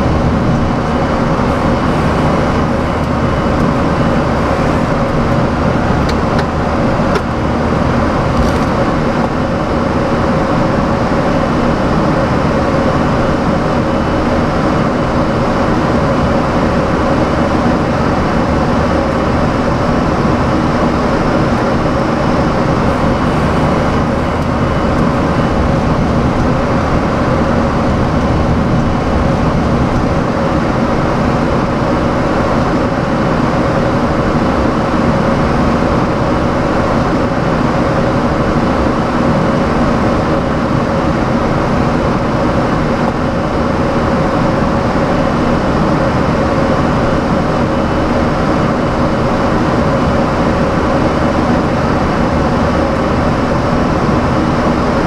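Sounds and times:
rush of airflow: 0.0 - 10.2, 19.4 - 31.5
faint steady hum: 0.0 - 14.6
aircraft engine drone: 0.0 - 55.0.

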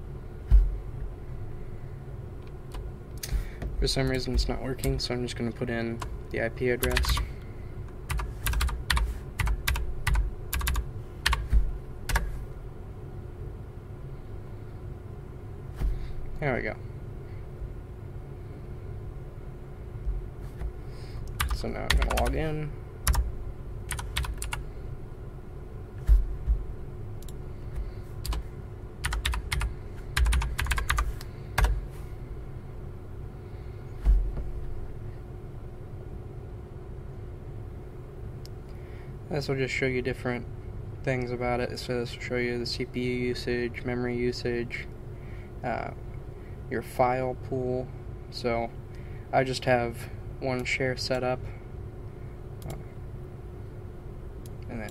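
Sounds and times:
computer keyboard typing: 6.8 - 7.3, 8.1 - 11.5, 12.1 - 12.3, 21.3 - 22.4, 23.0 - 23.3, 23.9 - 24.6, 28.2 - 28.4, 29.0 - 31.8.

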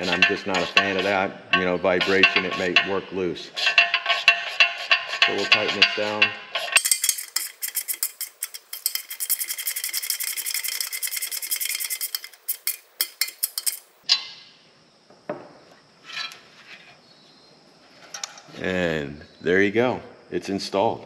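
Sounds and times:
hand ratchet clicking rapidly: 3.7 - 14.0.

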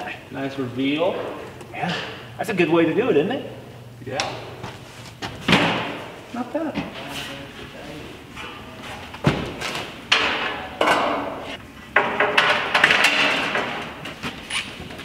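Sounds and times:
sheet metal panel banging: 8.3 - 14.0.

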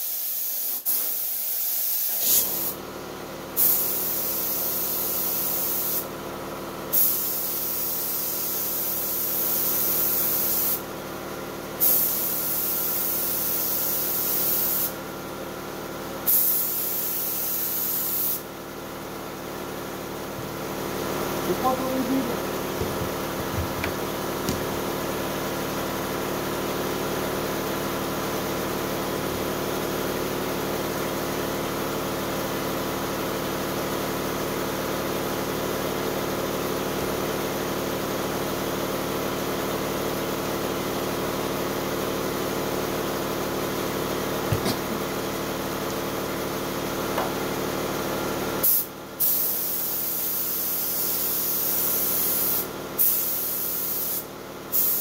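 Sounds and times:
spray gun hissing: 0.0 - 2.8, 3.6 - 6.0, 48.6 - 55.0
mechanical hum: 0.0 - 55.0.

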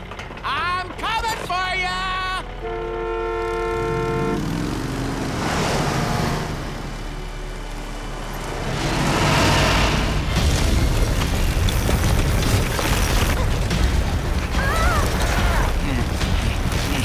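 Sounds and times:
bus horn honking: 2.5 - 4.8
bus engine revving: 3.4 - 12.3
rushing noise: 4.8 - 17.0.

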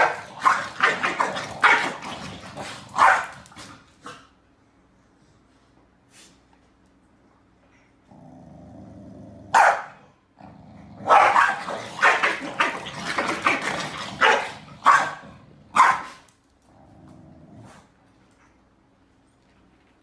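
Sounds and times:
dogs barking: 0.0 - 2.0, 2.6 - 3.4, 9.5 - 10.0, 11.0 - 16.2
dogs growling: 0.0 - 4.2, 8.0 - 9.6, 10.4 - 15.8, 16.6 - 18.0.

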